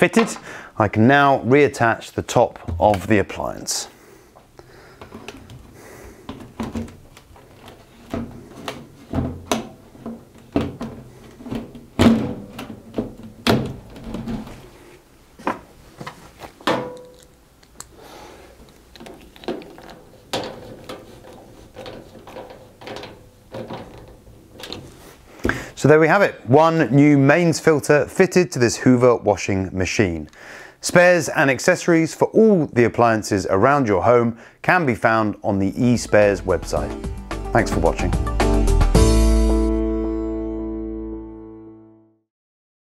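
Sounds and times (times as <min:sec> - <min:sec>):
metal panel thunks and knocks: 0:08.1 - 0:14.6.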